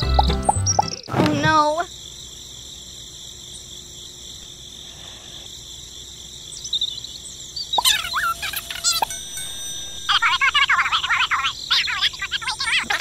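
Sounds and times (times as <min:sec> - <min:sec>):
crickets chirping: 0:00.0 - 0:13.0
high squeaky gliding chirps: 0:07.7 - 0:12.7.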